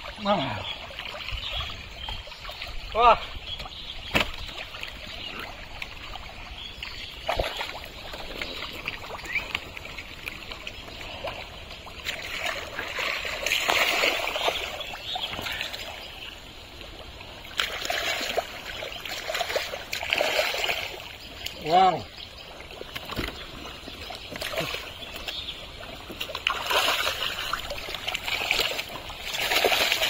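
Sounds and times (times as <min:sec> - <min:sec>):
mud and water splashing: 0:00.0 - 0:30.0.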